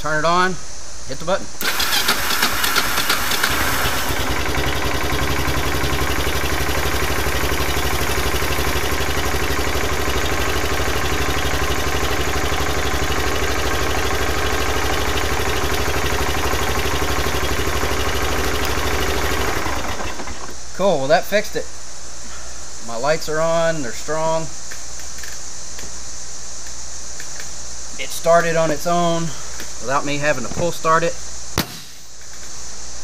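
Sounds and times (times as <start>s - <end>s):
electric starter cranking engine: 1.6s - 20.5s
engine idling: 1.6s - 20.5s.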